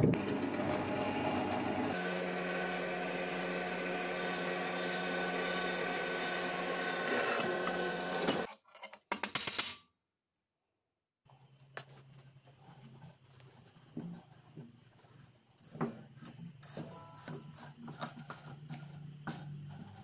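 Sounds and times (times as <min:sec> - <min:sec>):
drill press drilling steel: 0:00.3 - 0:08.5.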